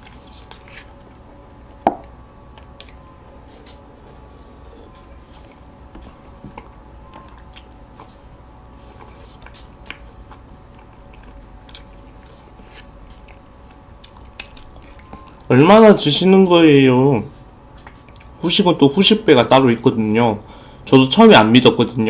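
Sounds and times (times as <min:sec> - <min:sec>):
chewing soft cakes: 0:00.0 - 0:15.6, 0:17.8 - 0:18.4
wet mouth clicks and smacks: 0:09.4 - 0:12.3.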